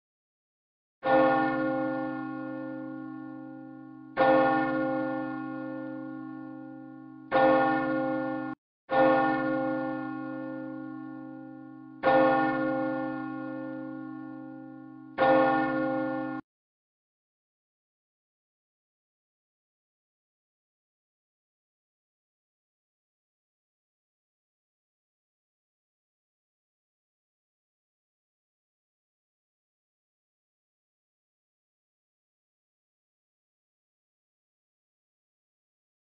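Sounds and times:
church bell ringing: 1.0 - 16.5.

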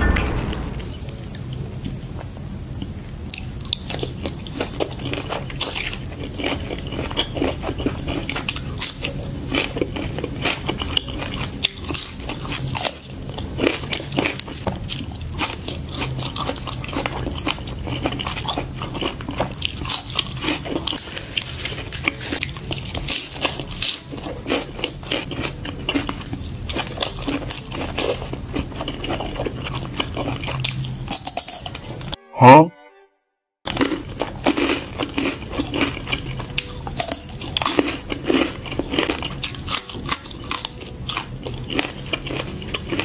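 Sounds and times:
chewing food: 2.8 - 32.1, 33.7 - 43.0
crunching raw vegetables: 33.7 - 43.0.

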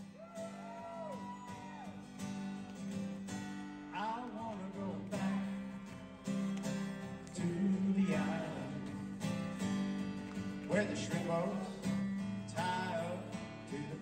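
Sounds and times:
acoustic guitar song: 0.0 - 14.0
person singing: 3.9 - 5.8, 7.2 - 9.2.

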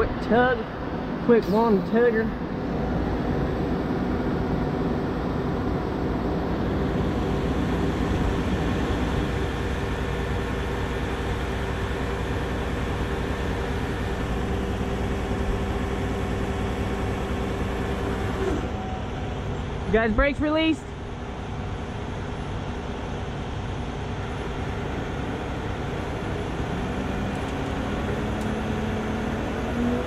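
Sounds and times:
diesel engine and hydraulic winch: 0.0 - 30.0.

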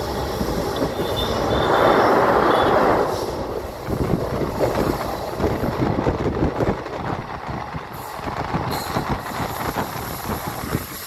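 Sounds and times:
train wheels rumbling on rail: 0.0 - 11.0
wind rushing past: 0.0 - 11.0
high wheel squeal: 0.2 - 3.5.

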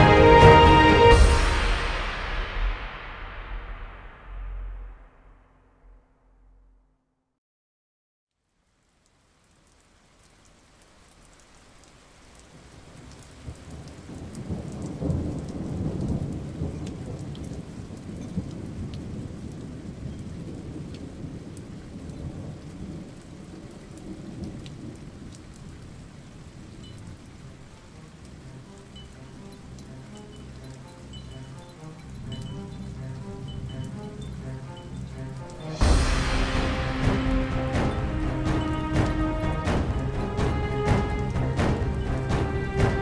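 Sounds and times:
rain hissing: 0.0 - 5.5, 8.4 - 43.0
thunder rumbling: 0.0 - 6.0, 13.4 - 26.9, 32.0 - 43.0
raindrop ticks: 8.3 - 43.0.

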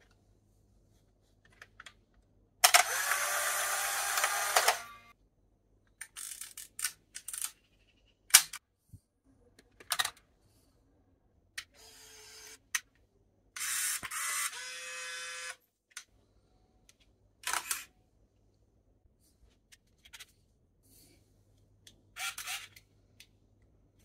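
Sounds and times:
camera shutter clicks: 2.6 - 4.9
camera motor whirring: 2.6 - 5.1, 13.6 - 15.6.

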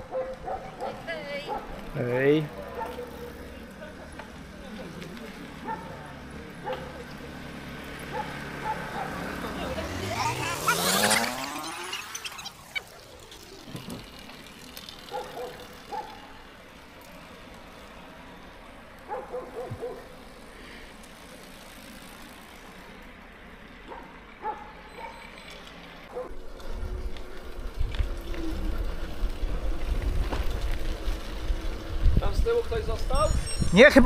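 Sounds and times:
short high squeaks: 10.2 - 13.0, 33.1 - 34.0
wind rumble on microphone: 26.7 - 33.8.

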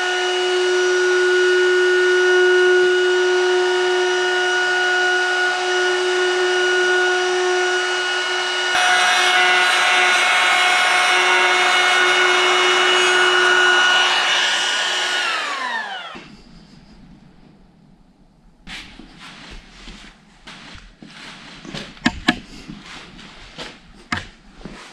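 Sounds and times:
power tool winding down: 0.0 - 16.3
power tool whining: 0.0 - 16.8
saw rasping through wood: 0.0 - 16.8.

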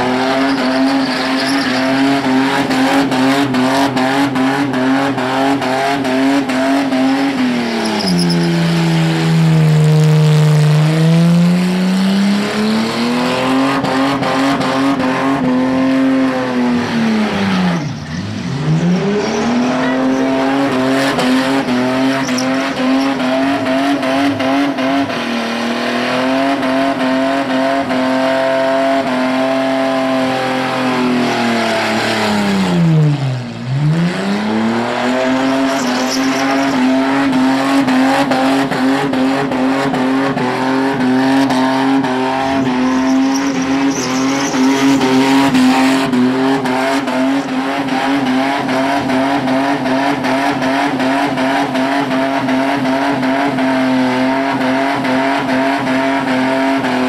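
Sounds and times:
car engine revving high: 0.0 - 57.0
tyres squealing: 0.1 - 3.1, 6.9 - 9.6, 17.4 - 24.0, 35.1 - 37.6, 41.8 - 45.7.

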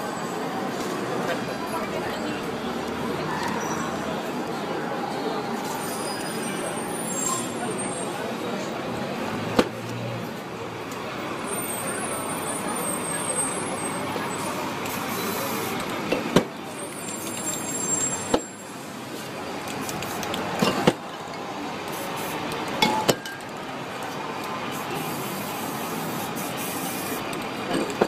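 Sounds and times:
city street traffic: 0.0 - 28.0
spray paint can hissing: 14.4 - 16.0, 16.8 - 20.6, 21.8 - 22.8, 24.4 - 27.6
spray can clicks: 19.7 - 20.7.

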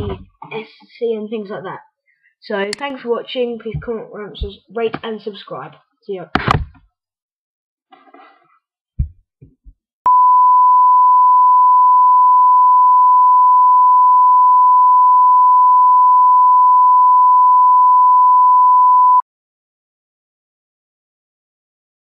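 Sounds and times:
steady test-tone beep: 10.1 - 19.2.

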